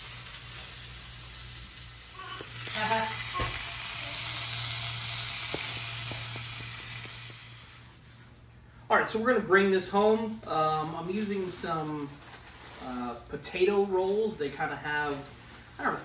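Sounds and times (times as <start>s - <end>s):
hot dogs sizzling in skillet: 0.0s - 8.0s.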